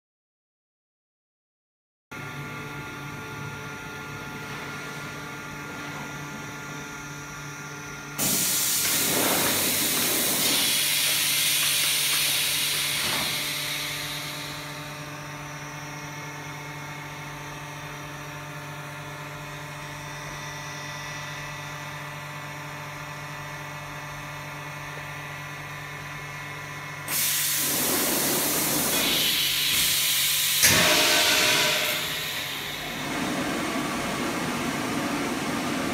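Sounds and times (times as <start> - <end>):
machine humming: 2.2 - 17.6, 27.1 - 35.9
loud air hissing: 8.2 - 15.2, 27.1 - 34.5.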